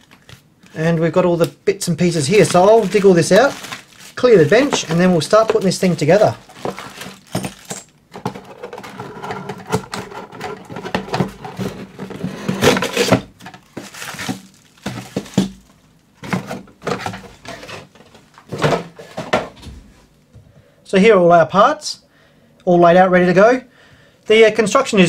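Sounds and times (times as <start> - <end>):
plastic bags crinkling: 1.9 - 9.0, 12.6 - 17.7.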